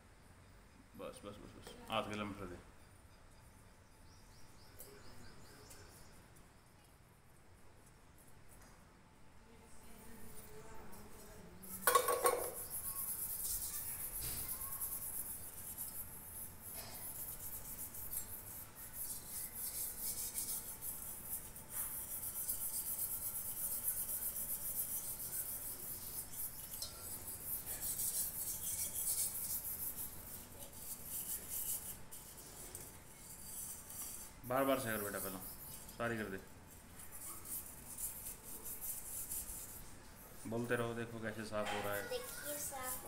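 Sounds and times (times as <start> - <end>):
scrub pad scrubbing metal: 11.9 - 36.4, 37.0 - 39.9.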